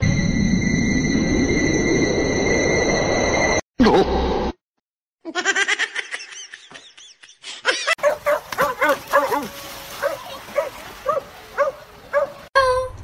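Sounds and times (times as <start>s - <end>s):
person laughing: 5.3s - 8.0s.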